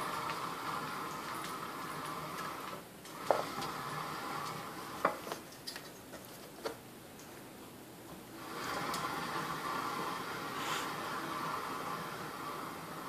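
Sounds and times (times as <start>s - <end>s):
bar stool whirring spin: 0.0s - 5.4s, 8.4s - 13.0s.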